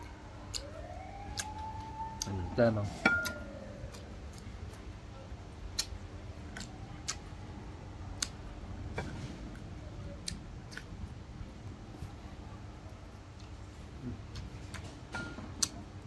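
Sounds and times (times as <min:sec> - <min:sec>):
faint low hum: 0:00.0 - 0:16.0
crunchy eating: 0:03.2 - 0:07.4, 0:08.1 - 0:16.0.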